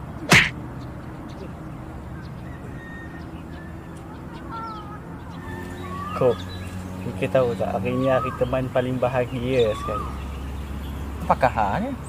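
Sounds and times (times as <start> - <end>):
bird calls: 0.0 - 12.0.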